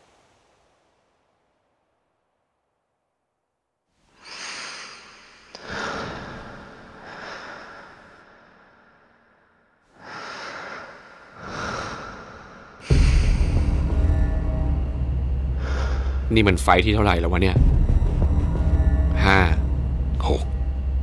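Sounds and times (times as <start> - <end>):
person breathing hard: 4.1 - 13.9, 15.5 - 16.3.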